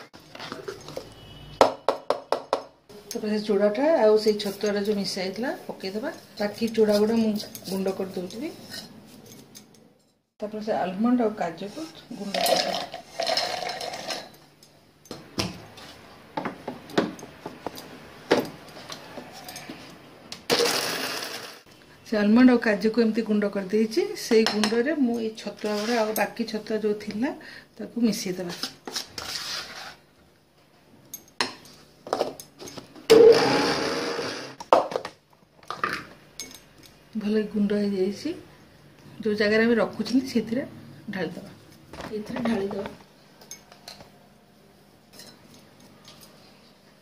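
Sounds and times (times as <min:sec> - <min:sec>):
mixer grinder running: 0:20.5 - 0:21.6, 0:33.1 - 0:34.6.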